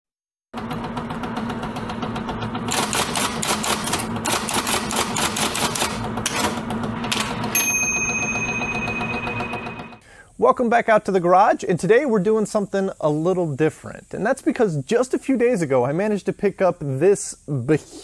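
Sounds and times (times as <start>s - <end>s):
typewriter keys clacking: 2.7s - 7.3s.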